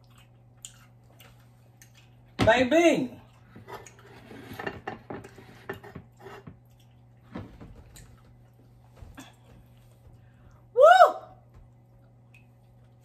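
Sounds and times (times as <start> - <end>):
dishes clicking and knocking: 4.4 - 6.6.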